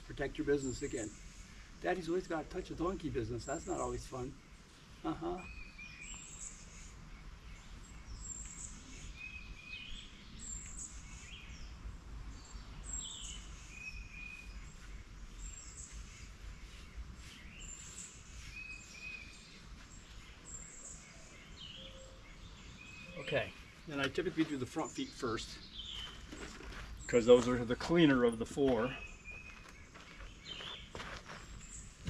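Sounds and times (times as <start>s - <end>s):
birds singing: 0.0s - 32.0s.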